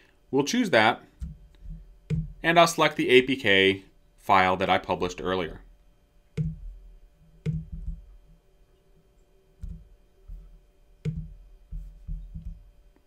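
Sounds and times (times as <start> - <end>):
soft low thumps: 1.1 - 2.5, 5.6 - 8.5, 9.6 - 12.9.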